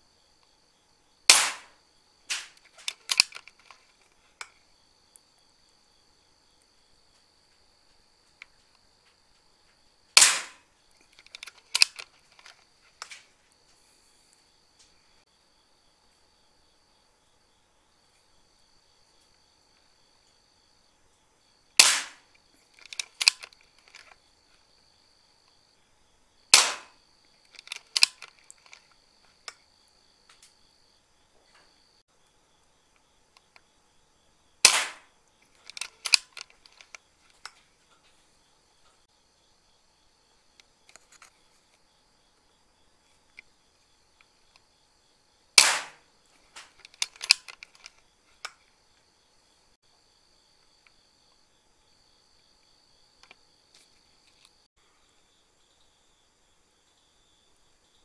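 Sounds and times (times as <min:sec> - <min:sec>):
air rifle shot crack: 0:01.3 - 0:03.2, 0:10.2 - 0:10.6, 0:21.8 - 0:22.2, 0:26.5 - 0:27.0, 0:34.6 - 0:35.1, 0:45.6 - 0:46.0
sharp clicks and taps: 0:02.3 - 0:04.6, 0:10.2 - 0:13.2, 0:21.8 - 0:24.2, 0:26.5 - 0:28.9, 0:34.6 - 0:37.6.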